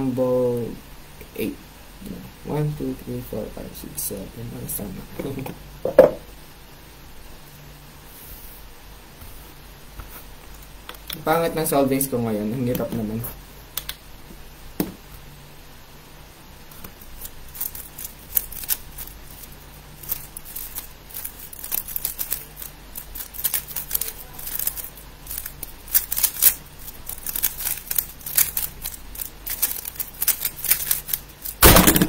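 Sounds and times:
single knock: 5.9s - 6.2s
speed cube layers clicking: 17.1s - 32.0s.

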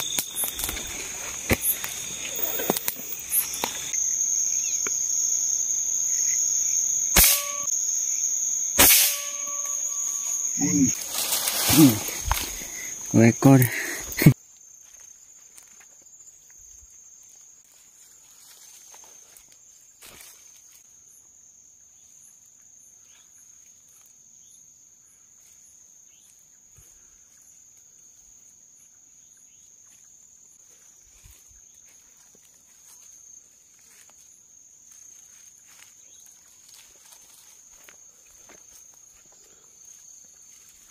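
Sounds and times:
footsteps through undergrowth: 0.0s - 4.0s, 10.9s - 13.1s, 14.8s - 20.8s, 30.7s - 40.9s
night insects chirring: 0.0s - 40.9s.

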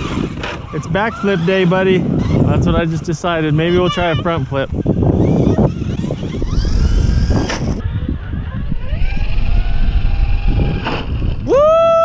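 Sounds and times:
heavy low rumble: 1.8s - 11.7s
toy truck motor whining: 3.7s - 11.4s.

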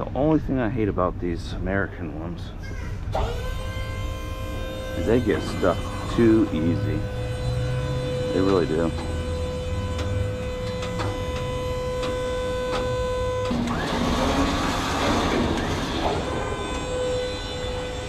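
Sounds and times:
hydraulic pump whining: 2.9s - 18.0s
dumpster grinding as it slides: 5.0s - 18.0s.

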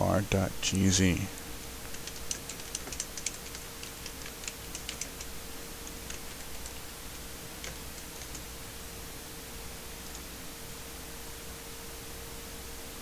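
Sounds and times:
faint hum and hiss: 0.0s - 13.0s
typing on keyboard: 1.9s - 8.5s.

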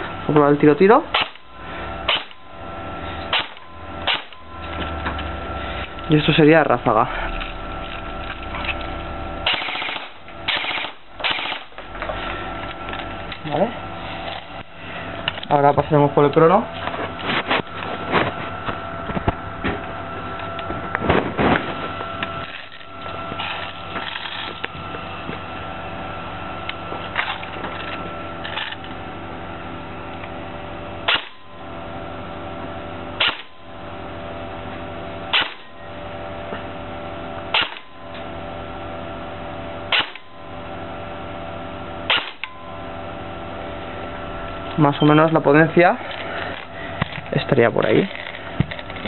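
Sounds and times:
airsoft rifle shots: 1.1s - 1.4s, 2.1s - 2.4s, 3.3s - 4.4s, 9.4s - 11.8s, 31.1s - 31.4s, 33.2s - 33.5s, 35.3s - 35.7s, 37.5s - 37.9s, 39.9s - 40.2s, 42.1s - 42.5s.

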